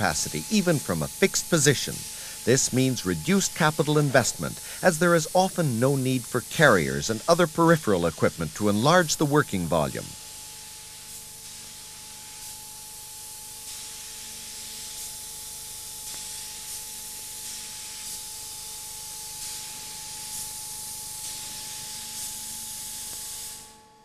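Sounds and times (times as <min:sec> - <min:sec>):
faint steady hum: 0:00.0 - 0:16.3
spray gun hissing: 0:00.0 - 0:23.6.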